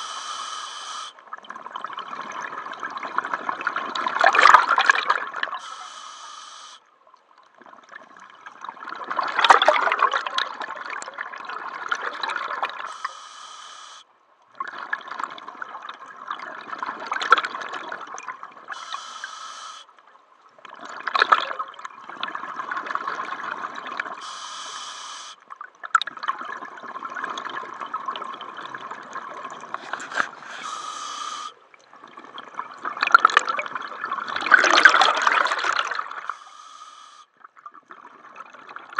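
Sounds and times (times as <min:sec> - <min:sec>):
regulator inhale hiss: 0:00.0 - 0:01.2, 0:05.6 - 0:06.9, 0:12.9 - 0:14.1, 0:18.7 - 0:19.9, 0:24.2 - 0:25.4, 0:29.8 - 0:31.6, 0:36.2 - 0:37.3.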